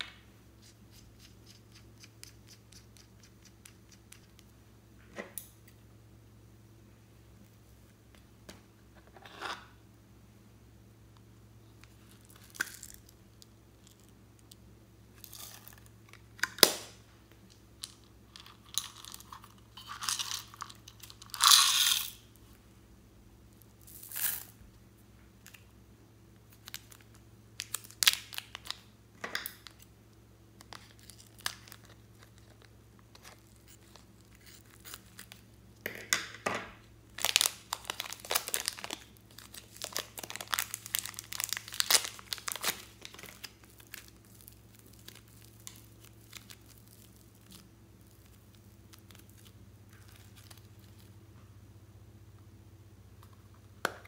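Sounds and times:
faint steady hum: 0.0s - 54.0s
plastic packaging crinkling and tearing: 26.5s - 29.8s, 30.7s - 35.4s, 37.1s - 51.1s.

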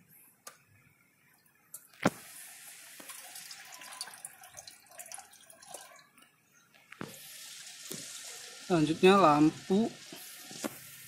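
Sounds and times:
small water drips: 1.3s - 10.9s
liquid trickling into tank: 1.4s - 6.4s.

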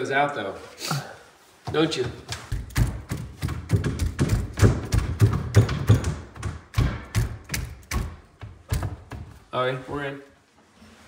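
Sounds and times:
rapid knocking on wooden cabinet: 1.7s - 9.4s.

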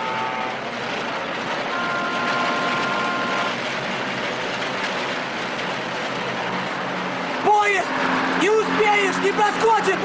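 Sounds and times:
high two-note horn: 0.0s - 0.7s, 1.7s - 3.6s
rushing noise of truck and train: 0.0s - 10.0s.

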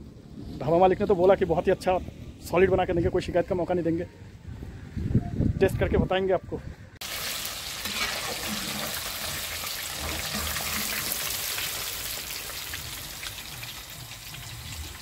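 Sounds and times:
deep-frying sizzle with crackles: 7.0s - 15.0s.

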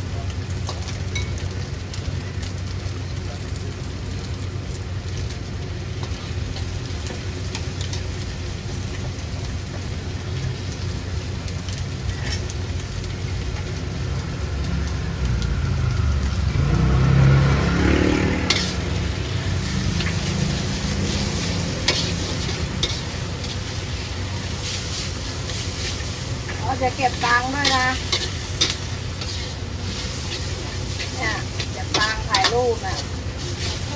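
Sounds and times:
noodles sizzling in a wok: 0.0s - 33.9s
metal spatula scraping wok: 12.1s - 12.5s, 18.1s - 33.9s.

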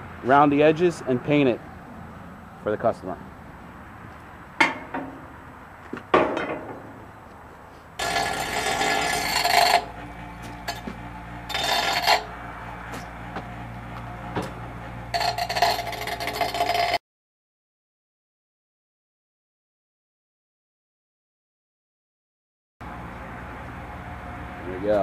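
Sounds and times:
bench grinder humming: 8.0s - 17.0s
steel rod grinding on wheel: 8.0s - 17.0s.

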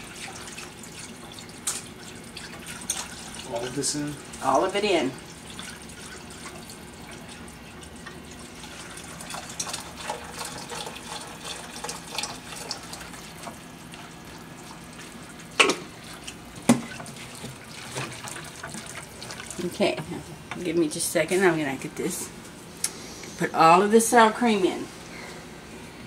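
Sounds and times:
broth pouring into saucepan: 0.0s - 20.1s.

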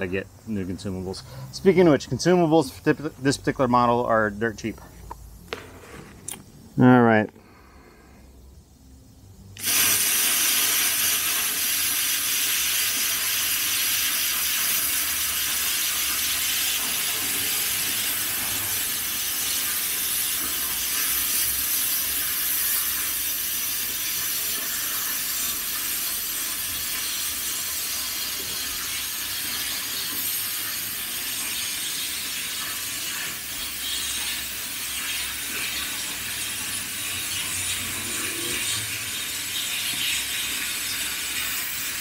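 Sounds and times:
plasma cutter arc hissing: 9.4s - 42.0s.

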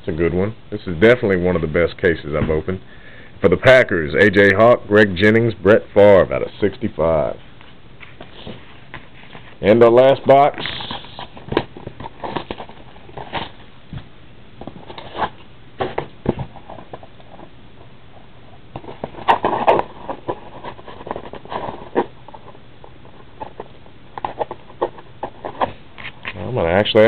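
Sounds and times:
hands scratching a card box: 10.6s - 13.6s, 18.8s - 26.2s.

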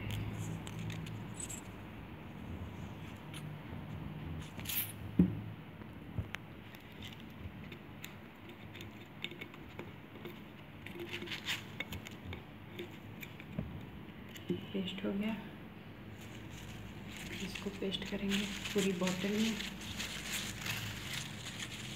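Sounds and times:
paper rustling: 16.2s - 21.9s.

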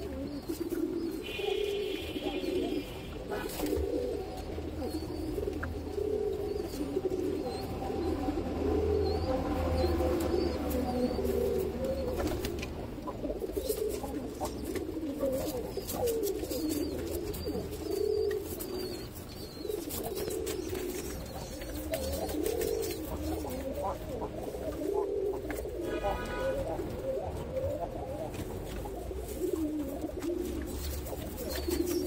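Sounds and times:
pigeons cooing: 0.0s - 32.0s
wings flapping: 12.1s - 12.8s.

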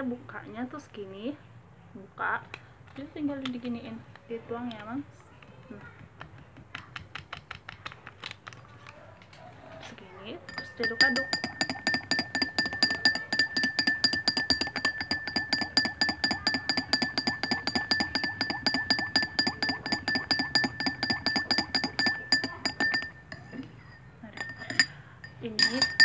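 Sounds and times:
glass ringing: 10.5s - 26.0s
spoon clinking in glass: 10.5s - 26.0s.

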